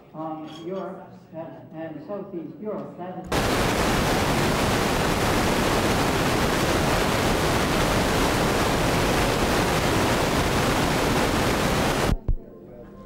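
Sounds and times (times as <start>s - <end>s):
loud static hiss: 3.3s - 12.4s.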